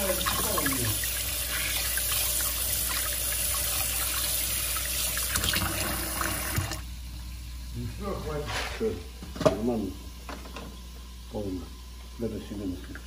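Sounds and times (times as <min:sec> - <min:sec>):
tap water running into sink: 0:00.0 - 0:06.9.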